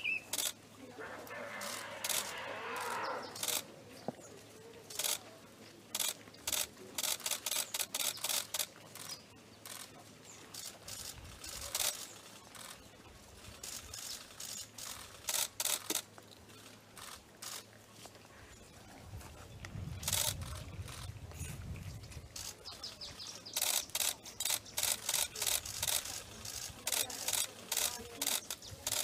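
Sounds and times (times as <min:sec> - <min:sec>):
camera shutters clicking: 0:13.6 - 0:16.1, 0:23.5 - 0:29.0.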